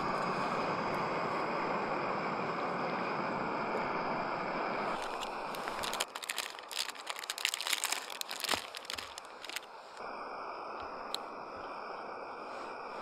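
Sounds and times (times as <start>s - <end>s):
steady rushing hiss: 0.0s - 13.0s
plastic packaging crinkling: 4.9s - 9.7s.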